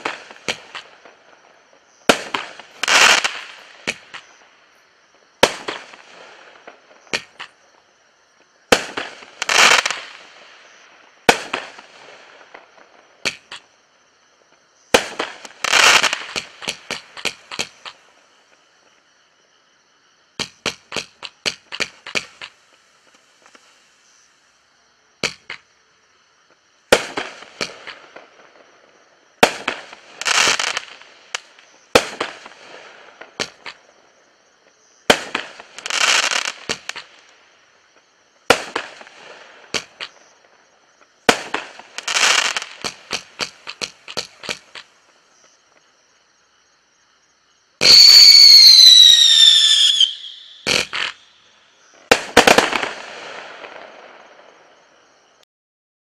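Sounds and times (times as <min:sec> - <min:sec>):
fireworks launching and bursting: 0:00.0 - 0:04.6, 0:05.3 - 0:07.6, 0:08.6 - 0:13.7, 0:14.9 - 0:18.6, 0:20.4 - 0:24.1, 0:25.2 - 0:25.7, 0:26.8 - 0:34.0, 0:35.0 - 0:37.6, 0:38.4 - 0:45.2, 0:47.8 - 0:55.0
small firework pops: 0:00.0 - 0:07.8, 0:08.4 - 0:13.8, 0:14.5 - 0:19.1, 0:20.4 - 0:23.9, 0:25.2 - 0:25.7, 0:26.5 - 0:28.7, 0:29.4 - 0:34.0, 0:34.6 - 0:46.0, 0:47.8 - 0:51.3, 0:52.0 - 0:54.7.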